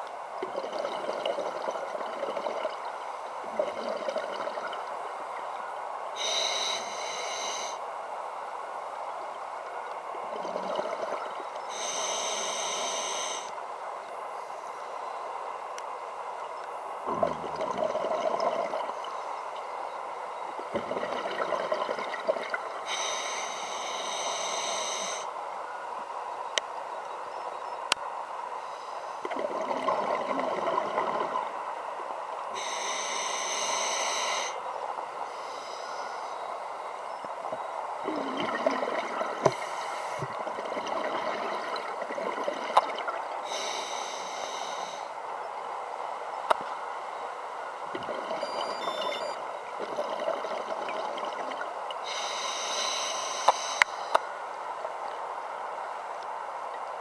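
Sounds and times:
regulator hissing inhalation: 6.2 - 7.8, 11.7 - 13.5, 22.9 - 25.3, 32.6 - 34.6, 43.5 - 45.1, 52.0 - 54.2
bubbling exhalations: 17.1 - 19.0, 20.7 - 22.6, 29.3 - 31.4, 38.1 - 43.2.

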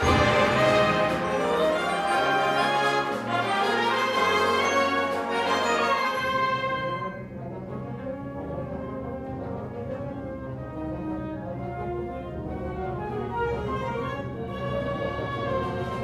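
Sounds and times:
concert band playing: 0.0 - 7.1.

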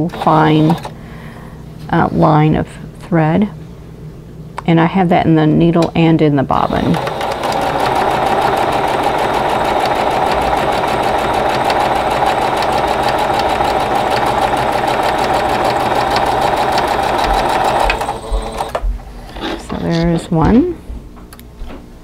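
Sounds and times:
electric sewing machine running: 0.0 - 0.9, 6.6 - 18.8.

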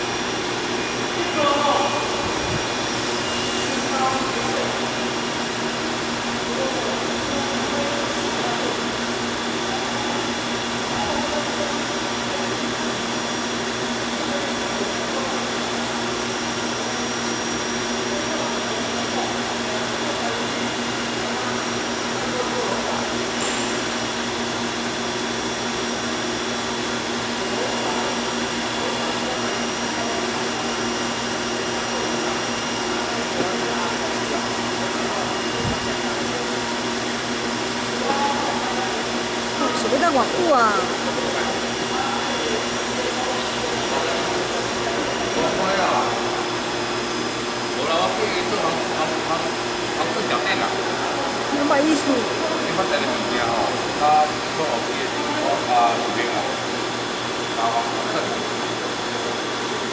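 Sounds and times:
drill machine whirring: 0.0 - 11.0
steady machine tones: 0.0 - 18.0.

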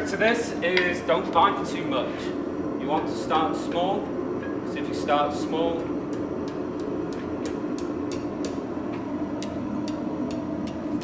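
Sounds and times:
steady hum: 0.0 - 11.0
hammer tapping hot steel on anvil: 5.8 - 11.0.

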